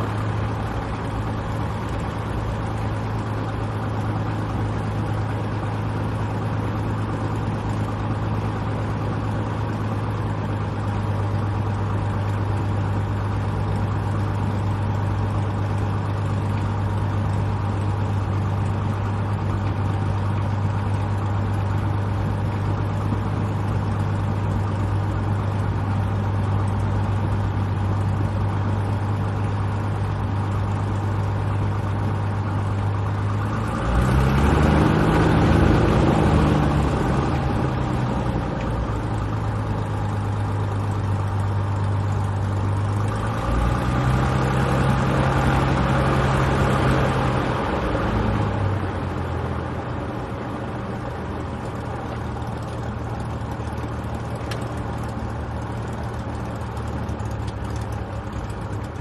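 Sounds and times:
light airplane engine and propeller: 0:00.0 - 0:59.0.

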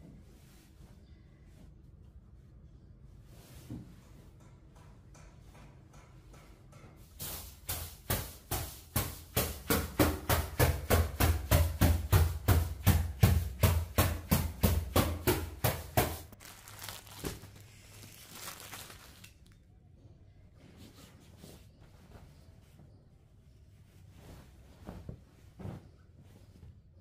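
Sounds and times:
stick whacking mattress: 0:07.2 - 0:16.4.

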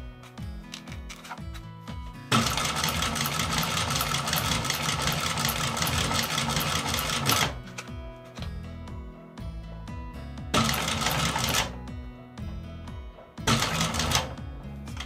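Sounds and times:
sewing machine stitching leather: 0:02.3 - 0:07.6, 0:10.6 - 0:11.7, 0:13.5 - 0:14.3.

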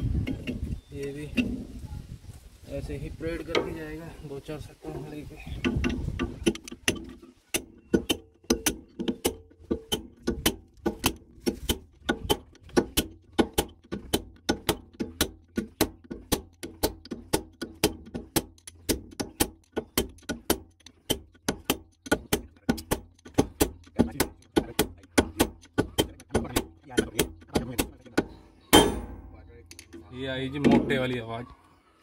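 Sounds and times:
hammering on metal: 0:05.6 - 0:30.0.

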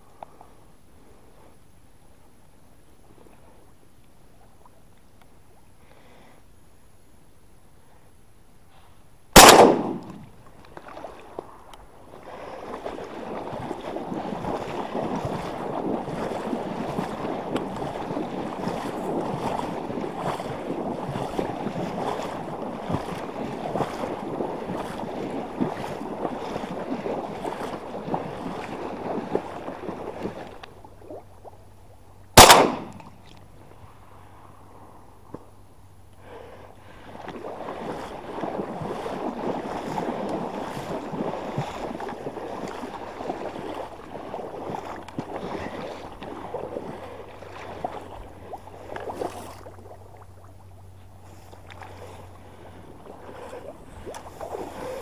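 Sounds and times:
shotgun shots: 0:09.4 - 0:10.2, 0:32.4 - 0:33.1
water splashing and sloshing: 0:09.4 - 0:34.6, 0:36.2 - 0:55.0.

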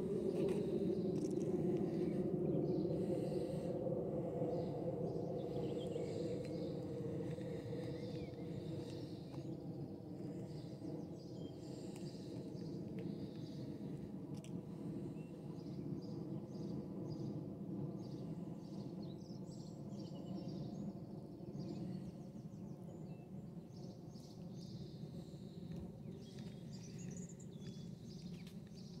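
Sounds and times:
birds chirping: 0:00.0 - 0:13.8, 0:23.8 - 0:29.0.

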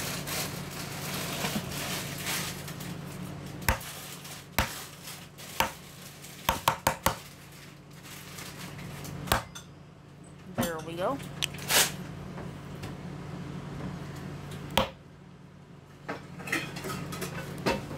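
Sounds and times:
packaging rustling: 0:00.0 - 0:06.5, 0:07.2 - 0:09.2
low steady hum: 0:00.0 - 0:17.9.

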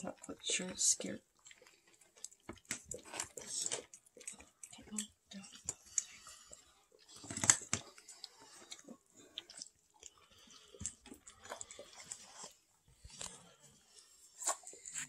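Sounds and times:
kittens chewing food: 0:00.0 - 0:15.0.

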